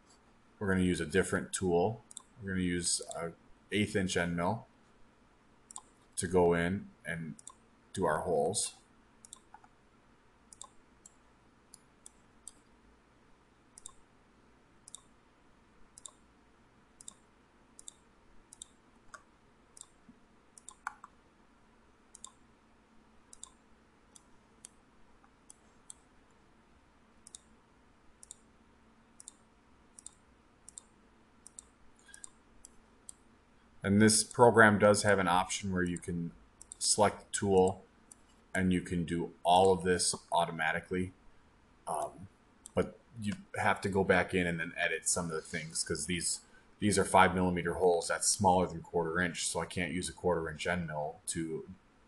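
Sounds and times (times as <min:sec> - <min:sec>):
computer mouse clicks: 0:02.1 - 0:02.4, 0:05.7 - 0:06.0, 0:07.4 - 0:07.6, 0:09.2 - 0:09.8, 0:10.5 - 0:12.8, 0:13.8 - 0:14.0, 0:14.8 - 0:15.2, 0:15.9 - 0:16.3, 0:17.0 - 0:21.2, 0:22.1 - 0:22.4, 0:23.3 - 0:26.4, 0:27.2 - 0:27.6, 0:28.2 - 0:28.5, 0:29.2 - 0:33.3, 0:36.6 - 0:36.8, 0:38.1 - 0:38.4.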